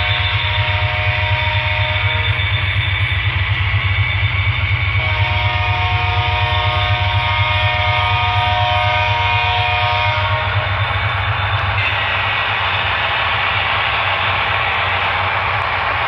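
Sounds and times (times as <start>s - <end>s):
multi-tone air horn: 0.0s - 2.4s, 5.0s - 10.8s, 11.8s - 12.6s.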